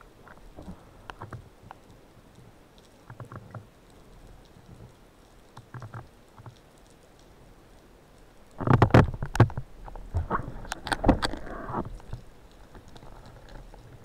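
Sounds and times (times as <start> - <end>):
faint underwater background: 0.0 - 14.0
underwater clicks and knocks: 3.0 - 3.6, 8.6 - 14.0.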